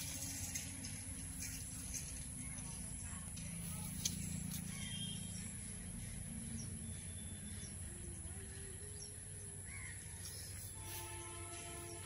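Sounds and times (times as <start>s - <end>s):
low steady rumble: 0.0s - 12.0s
bird chirps: 4.1s - 12.0s.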